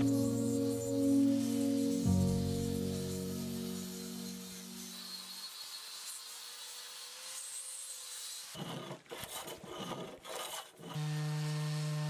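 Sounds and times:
hand plane shaving wood: 8.3 - 12.0.

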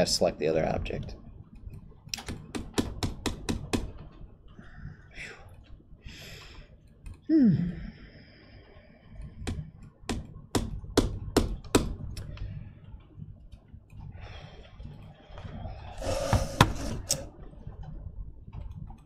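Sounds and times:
computer mouse clicks: 6.8 - 7.3.

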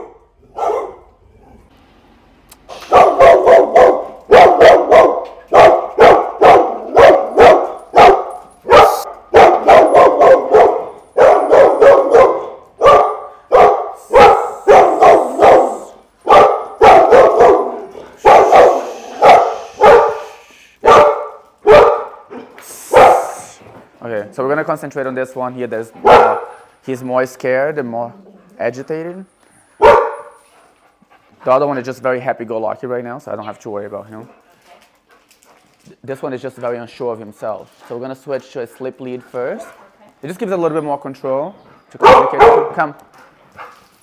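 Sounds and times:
dogs barking: 0.0 - 1.1, 2.8 - 23.6, 26.0 - 26.7, 29.8 - 30.5, 41.9 - 42.8.

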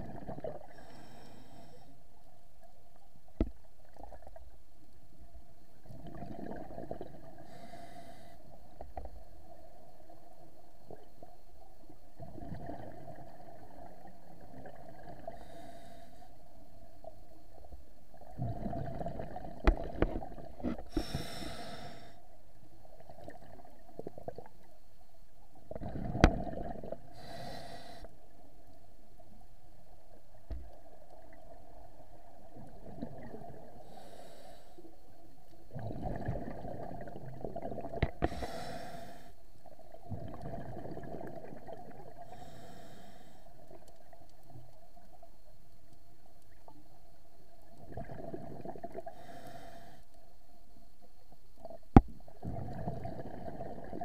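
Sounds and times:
gurgling rumble of bubbles: 0.0 - 0.8, 5.8 - 7.5, 8.7 - 15.4, 18.1 - 21.0, 25.6 - 27.2, 30.7 - 33.8, 35.7 - 38.2, 39.7 - 42.3, 47.6 - 49.1, 51.6 - 54.0
diver breathing through regulator: 0.7 - 2.0, 7.4 - 8.5, 15.3 - 16.4, 20.6 - 22.2, 27.1 - 28.1, 33.8 - 34.9, 38.2 - 39.4, 42.3 - 43.5, 49.1 - 50.1.

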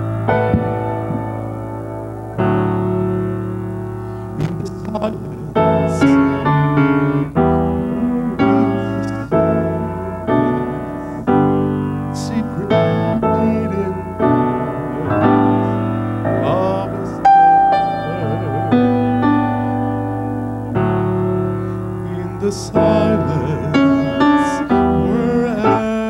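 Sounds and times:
slow piano chords: 0.0 - 26.0.

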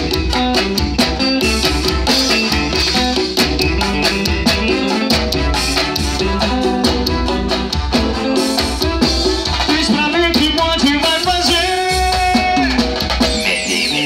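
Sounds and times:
live band dance music: 0.0 - 14.0.

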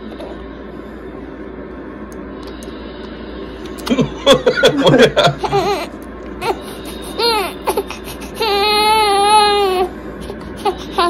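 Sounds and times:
baby fussing and crying: 5.4 - 11.0.

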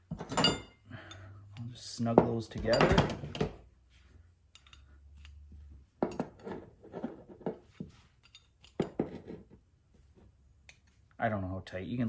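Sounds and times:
small metal parts clinking: 4.5 - 5.5, 8.2 - 8.9.

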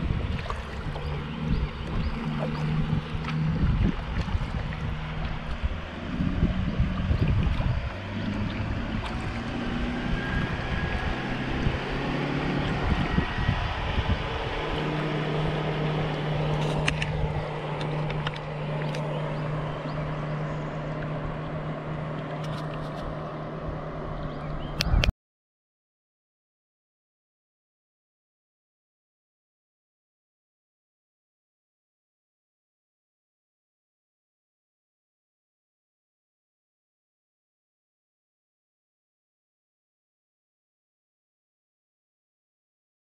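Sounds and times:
low hum: 0.0 - 25.1
water noise: 0.0 - 25.1
wind: 0.0 - 25.1.

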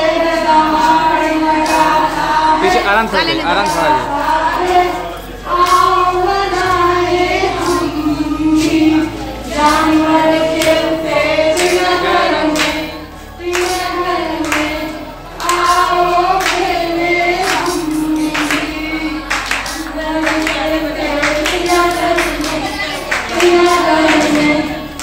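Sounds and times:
women singing together: 0.0 - 25.0
hand claps: 1.6 - 2.8, 9.6 - 25.0.

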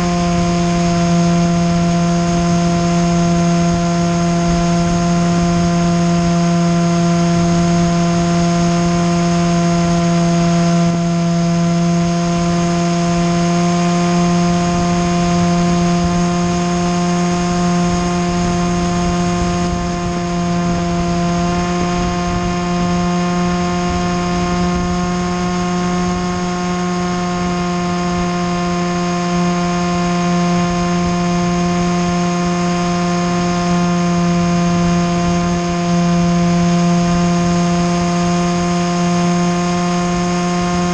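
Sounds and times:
drone motor and propellers: 0.0 - 40.9.

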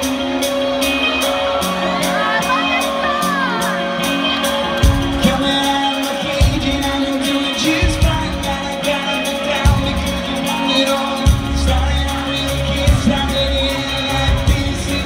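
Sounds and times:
live rock band playing: 0.0 - 15.0
person singing: 4.8 - 15.0.

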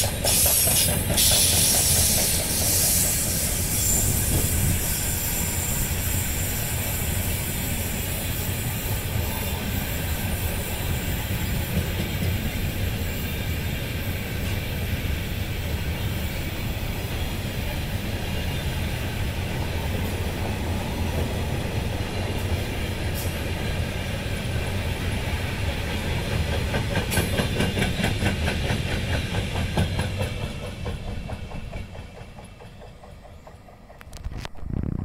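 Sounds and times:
rhythmic clickety-clack: 0.0 - 4.8, 11.2 - 12.9, 25.2 - 34.5
train wheels rumbling on rails: 0.0 - 35.0.

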